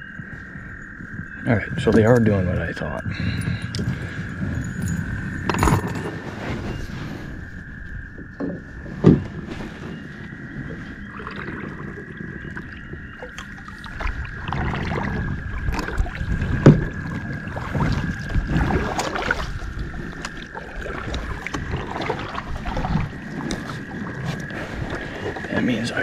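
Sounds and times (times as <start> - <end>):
paddle splashing through water: 8.4 - 26.0.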